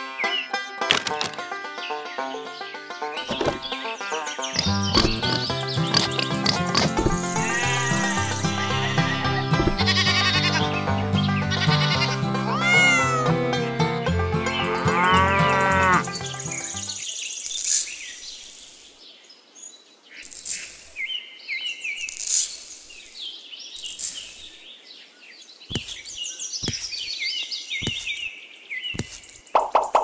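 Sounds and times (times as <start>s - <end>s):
birds chirping: 0.0s - 30.0s
cow mooing: 14.6s - 16.1s
sand pouring into a tray: 17.5s - 18.9s, 20.3s - 21.0s, 22.1s - 23.3s, 23.9s - 24.6s.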